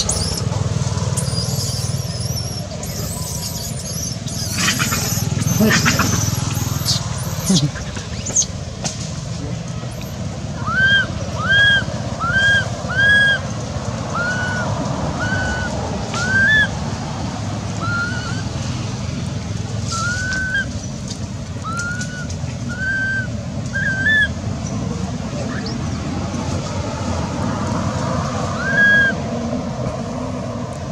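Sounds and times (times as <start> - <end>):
infant monkey coo calls: 0.0 - 0.5, 1.2 - 8.6, 9.9 - 16.7, 17.8 - 18.5.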